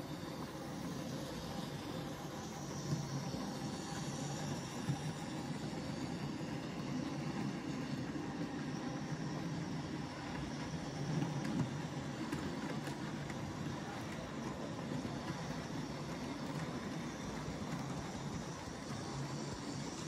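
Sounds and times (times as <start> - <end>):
model train rumbling on track: 0.0 - 20.0.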